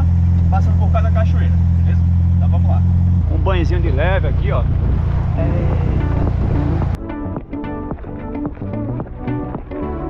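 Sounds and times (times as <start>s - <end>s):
buggy engine rumble: 0.0s - 7.0s
wind on microphone: 4.3s - 7.0s
plucked background music: 5.3s - 10.0s.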